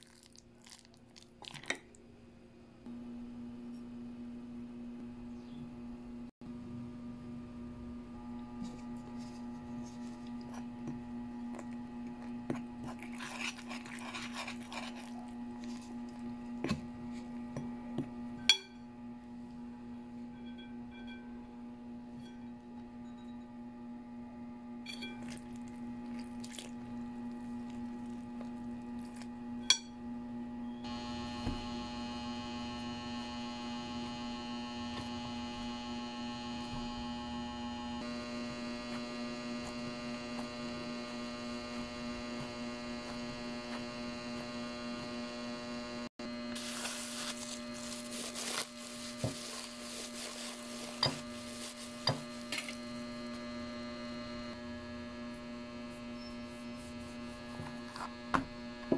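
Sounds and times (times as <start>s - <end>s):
electrical hum: 0.0s - 58.9s
rustling: 46.5s - 53.0s.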